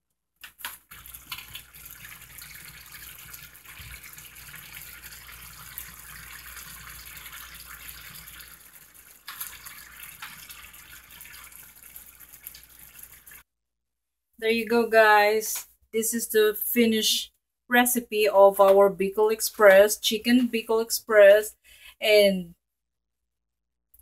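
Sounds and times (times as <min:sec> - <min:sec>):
sauce simmering in a frying pan: 0:00.6 - 0:13.4.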